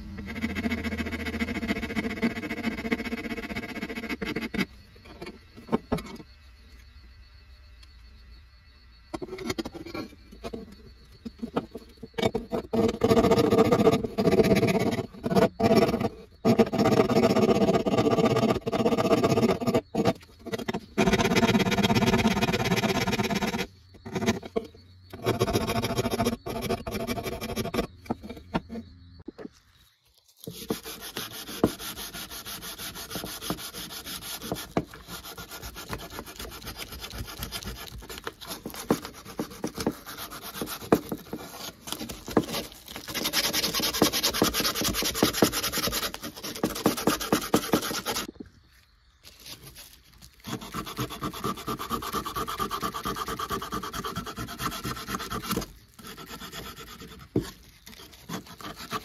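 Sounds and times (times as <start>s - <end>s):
sandpaper scraping metal: 12.3s - 24.6s, 30.4s - 48.3s, 49.5s - 59.0s.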